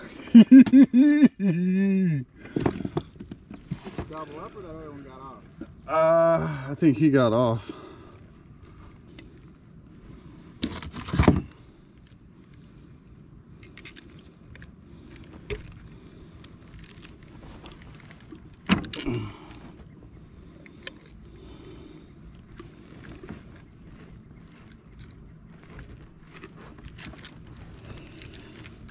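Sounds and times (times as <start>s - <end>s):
fishing pliers clicking and rattling: 13.6s - 15.8s, 16.4s - 19.6s, 20.6s - 21.2s.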